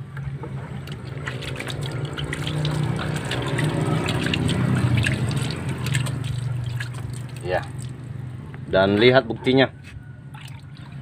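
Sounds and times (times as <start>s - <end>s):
water splashing on metal: 0.8s - 8.4s, 10.3s - 11.0s.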